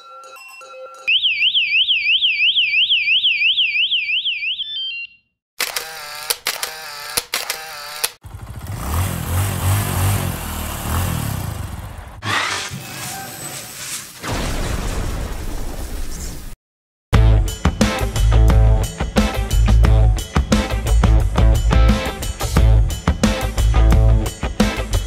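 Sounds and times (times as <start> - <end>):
electronic alarm siren warbling: 1.1 - 5.3.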